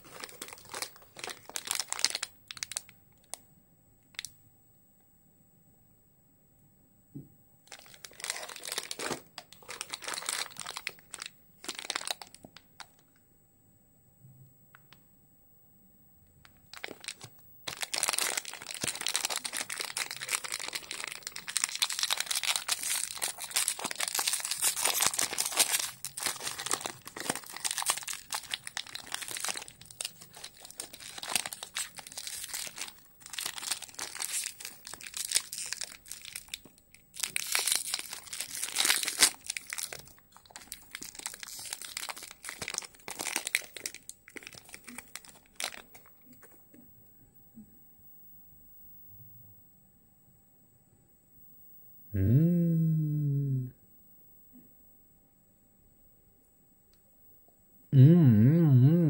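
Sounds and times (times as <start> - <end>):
plastic wrapper crinkling: 0.0 - 3.4, 4.1 - 4.3, 7.7 - 13.0, 16.4 - 46.6.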